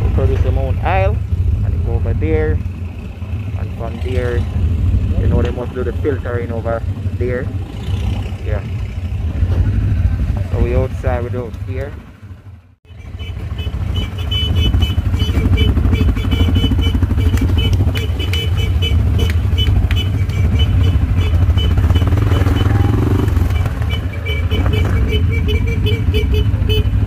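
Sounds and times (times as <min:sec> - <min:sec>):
atv engine low rumble: 0:00.0 - 0:27.0
rapid irregular ticking: 0:13.5 - 0:26.9.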